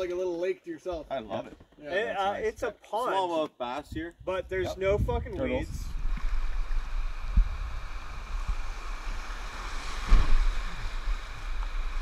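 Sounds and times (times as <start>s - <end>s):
wind on microphone: 3.8s - 12.0s.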